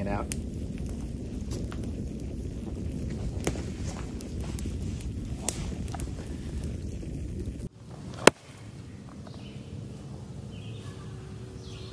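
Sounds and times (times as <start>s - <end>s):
burning wood popping: 0.0s - 8.4s
campfire crackling: 0.0s - 9.8s
low steady rumble: 0.0s - 11.8s.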